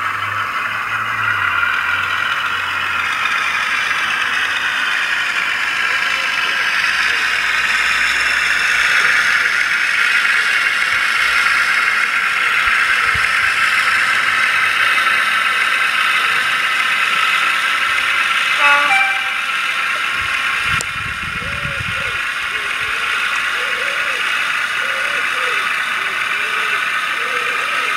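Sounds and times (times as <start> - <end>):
diesel engine sound from small speaker: 0.0 - 27.9
short horn blast: 18.6 - 19.6.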